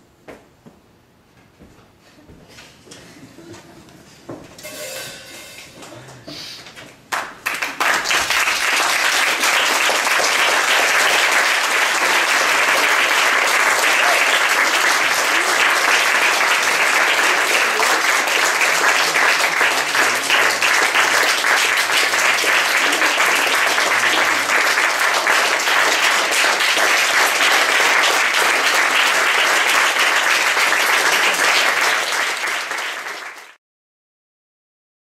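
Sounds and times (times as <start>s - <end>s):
audience applauding: 7.1s - 33.6s.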